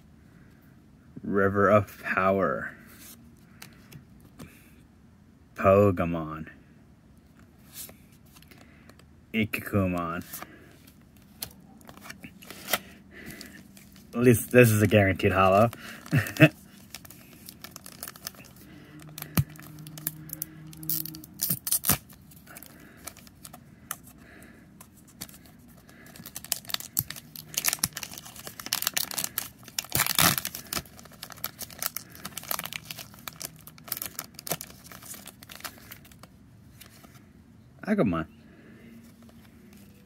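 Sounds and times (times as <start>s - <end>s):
foil pack tearing and crinkling: 11.9s - 23.6s, 25.1s - 36.3s.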